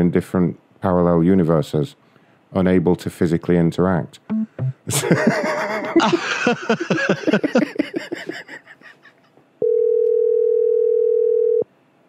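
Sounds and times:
laughter over phone line: 0:04.9 - 0:09.1
steady telephone tone: 0:09.6 - 0:11.7.

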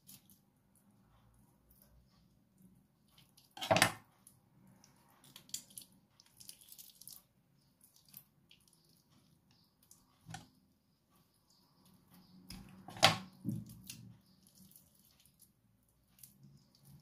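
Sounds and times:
wet squishing of raw chicken: 0:04.7 - 0:10.0, 0:13.5 - 0:17.0.

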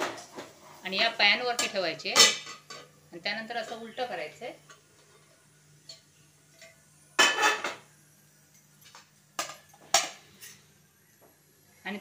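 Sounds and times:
frying pan clattering on metal plate: 0:01.5 - 0:02.9, 0:07.2 - 0:07.8, 0:09.4 - 0:10.2.

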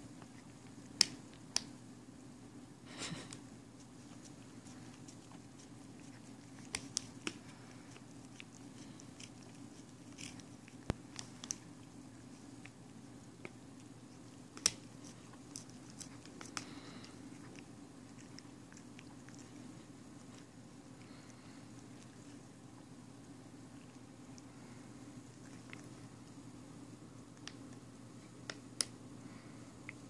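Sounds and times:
faint low hum: 0:00.0 - 0:30.0
cat licking: 0:03.7 - 0:26.4.

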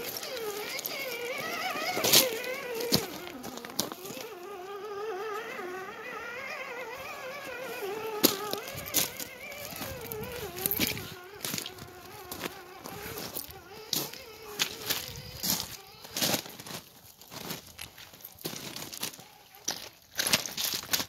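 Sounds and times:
rocks clacking: 0:00.0 - 0:04.3
electric motor whining: 0:00.0 - 0:16.6.

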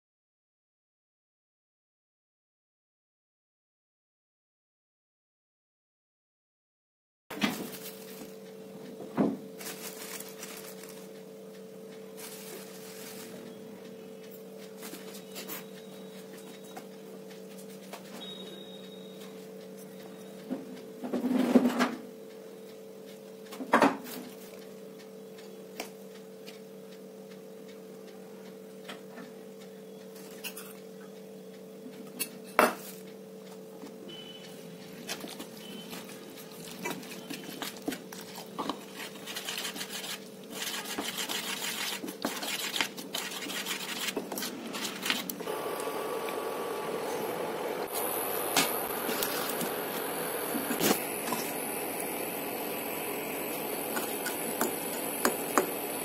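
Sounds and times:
spoon scraping round bowl: 0:35.1 - 0:45.5, 0:47.9 - 0:56.0
low hum: 0:45.4 - 0:56.0.

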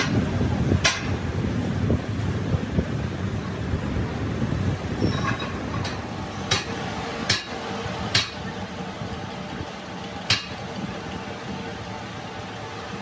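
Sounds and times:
metal lathe humming: 0:06.0 - 0:12.7.

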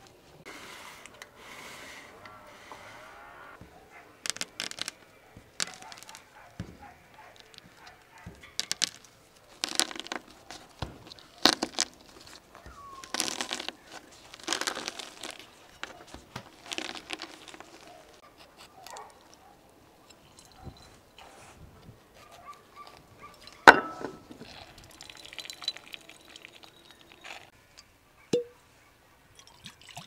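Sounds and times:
tomato skin crinkling and tearing: 0:04.2 - 0:19.2.

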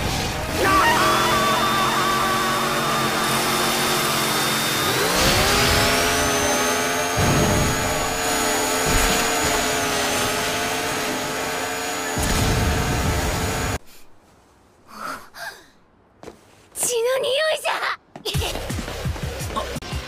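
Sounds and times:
chainsaw engine revving: 0:00.2 - 0:13.8.

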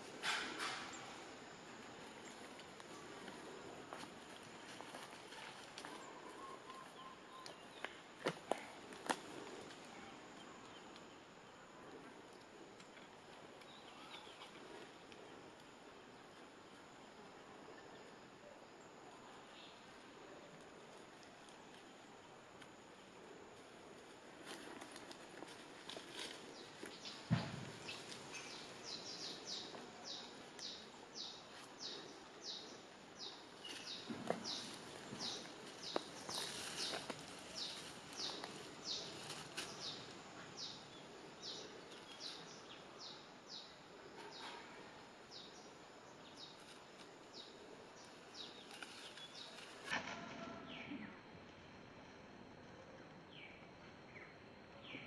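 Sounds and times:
rustling in dry leaves: 0:00.0 - 0:10.3, 0:19.6 - 0:42.8, 0:46.4 - 0:50.3.

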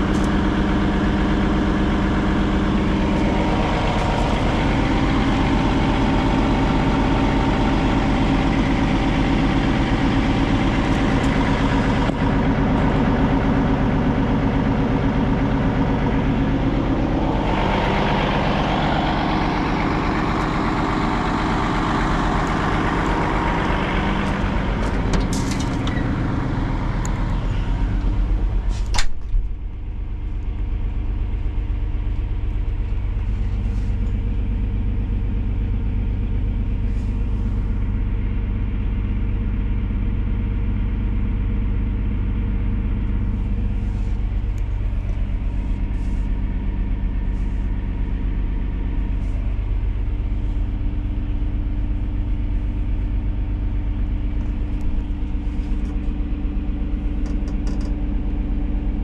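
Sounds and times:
excavator diesel engine idling: 0:00.0 - 0:59.0
clunk: 0:24.3 - 0:26.1, 0:28.7 - 0:29.6.

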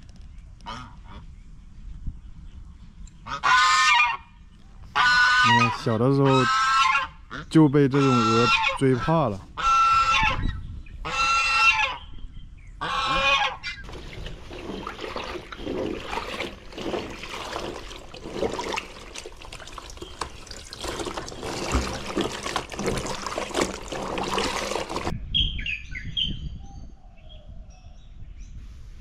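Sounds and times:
birds chirping: 0:12.0 - 0:28.0
clothes scrubbed by hand: 0:13.8 - 0:25.1
tap water running into basin: 0:13.8 - 0:25.1
water splashing and sloshing: 0:13.8 - 0:25.2.

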